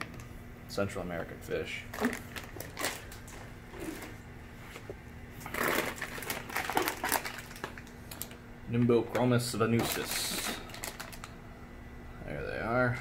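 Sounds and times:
plastic bags crinkling: 1.9s - 4.2s, 5.4s - 8.4s, 9.7s - 11.4s.

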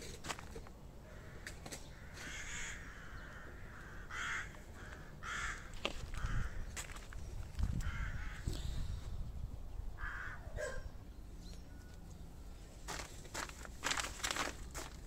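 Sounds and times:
bird harsh calls: 1.0s - 9.0s.

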